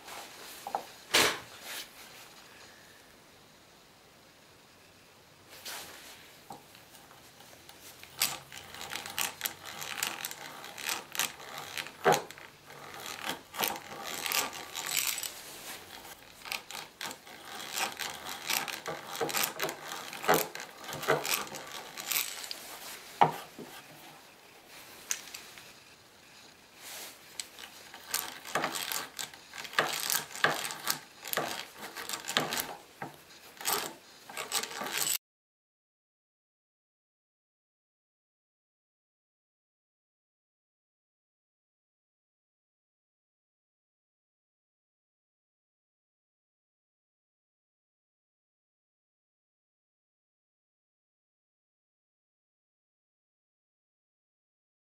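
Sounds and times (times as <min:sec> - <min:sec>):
hand drill scraping through wood: 0:06.9 - 0:35.2
drill gears clicking: 0:08.0 - 0:23.8, 0:27.2 - 0:35.2.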